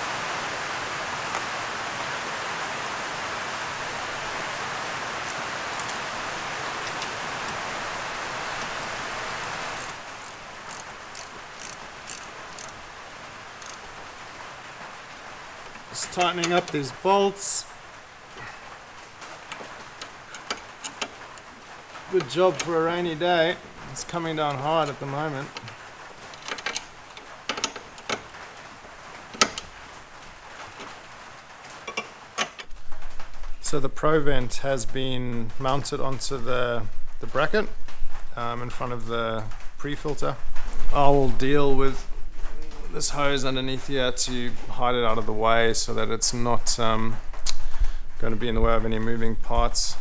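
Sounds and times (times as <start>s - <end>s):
heavy rain hissing: 0.0s - 50.0s
ratchet wrench clicking: 9.8s - 12.8s, 13.6s - 13.8s.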